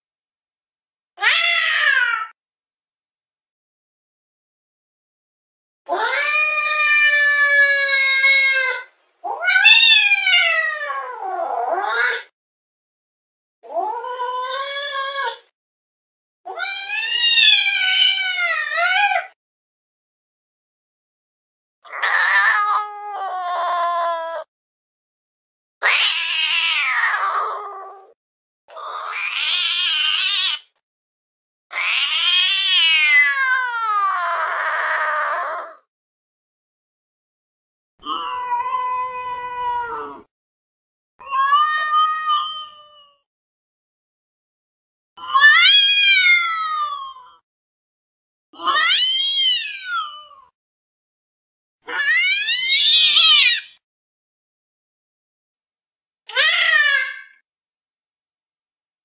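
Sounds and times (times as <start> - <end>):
cat yowling: 1.2 - 2.4, 5.9 - 12.3, 16.5 - 19.4, 21.9 - 24.5, 25.8 - 30.7, 31.7 - 35.8, 38.0 - 40.3, 41.2 - 43.2, 45.2 - 47.4, 48.6 - 50.6, 51.9 - 53.8, 56.3 - 57.4.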